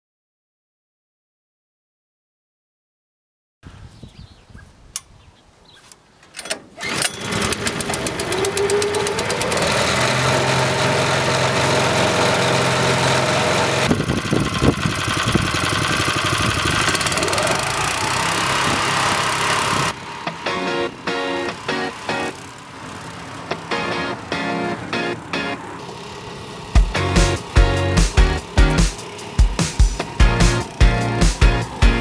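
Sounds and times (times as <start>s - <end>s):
engine cranking: 6.3s - 24.4s, 25.2s - 32.0s
small petrol engine running: 6.8s - 32.0s.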